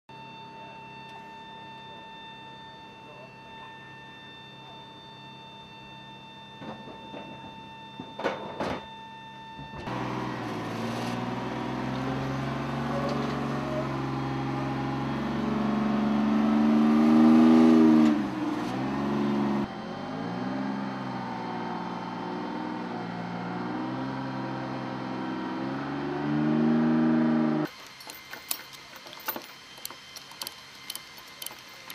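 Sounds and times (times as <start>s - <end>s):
diesel engine under load: 9.8s - 31.9s.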